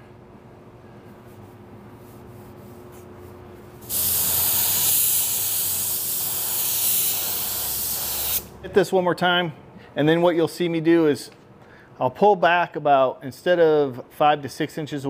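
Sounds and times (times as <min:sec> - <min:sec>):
paint spray gun hissing: 0:03.8 - 0:08.5.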